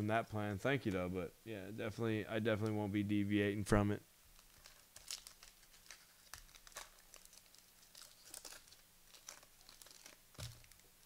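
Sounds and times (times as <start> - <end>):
wrappers crinkling: 4.3 - 11.0.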